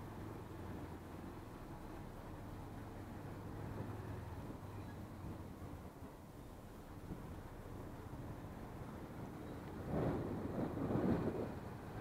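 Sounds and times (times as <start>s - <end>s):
motorcycle engine running low: 7.0s - 12.0s.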